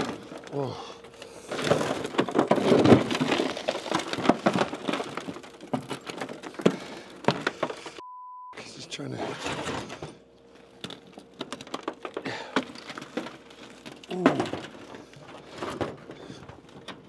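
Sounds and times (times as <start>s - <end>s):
rock and dirt clicking: 0.0s - 8.0s, 10.0s - 17.0s
person grunting: 0.5s - 1.0s, 14.1s - 14.6s.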